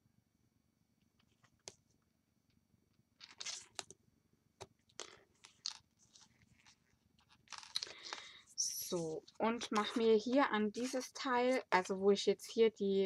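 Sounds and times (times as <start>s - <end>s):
tape crackling rips: 3.2s - 3.9s.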